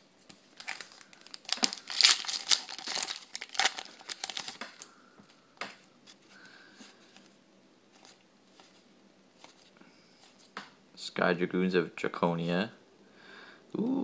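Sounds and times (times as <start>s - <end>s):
foil wrapper crinkling: 0.4s - 4.9s.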